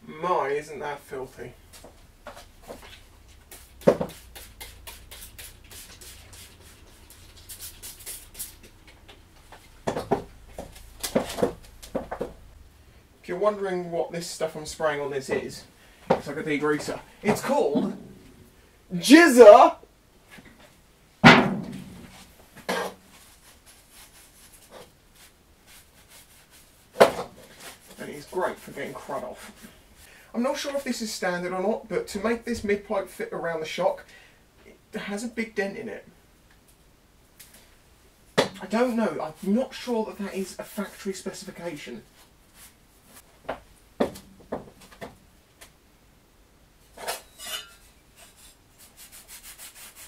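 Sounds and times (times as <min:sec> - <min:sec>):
spray bottle hissing bursts: 0:03.5 - 0:08.8.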